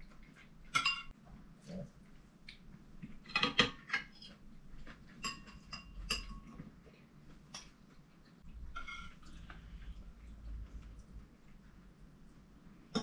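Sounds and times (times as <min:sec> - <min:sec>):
cutlery clinking on china: 0:00.7 - 0:01.2, 0:05.2 - 0:06.6, 0:08.7 - 0:09.4.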